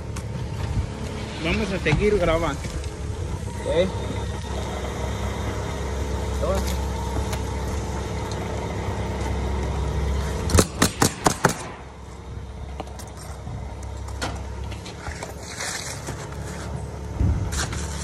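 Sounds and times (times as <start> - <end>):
motor hum: 0.0 - 18.0
nail gun firing: 10.5 - 11.8.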